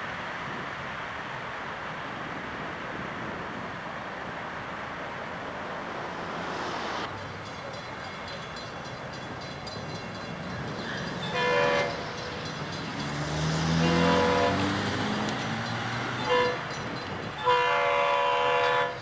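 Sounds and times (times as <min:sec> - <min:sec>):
train rumble: 0:00.0 - 0:19.0
locomotive air horn blasts: 0:11.3 - 0:12.4, 0:13.7 - 0:14.8, 0:16.2 - 0:19.0.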